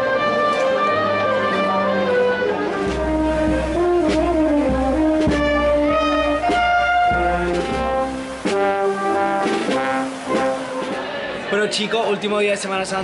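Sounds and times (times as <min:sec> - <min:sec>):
brass band playing march: 0:00.0 - 0:11.4
sharp drum strokes: 0:02.8 - 0:11.3.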